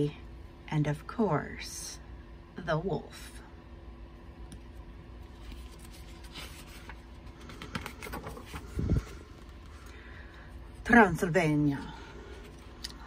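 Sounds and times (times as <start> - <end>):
low steady hum: 0.0 - 13.0
book pages rustling: 5.2 - 9.9.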